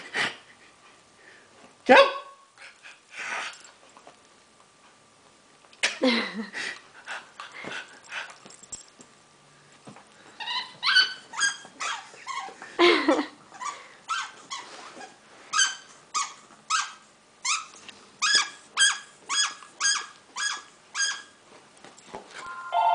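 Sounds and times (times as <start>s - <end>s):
dog yipping and whining: 10.4s - 12.6s, 13.5s - 21.4s.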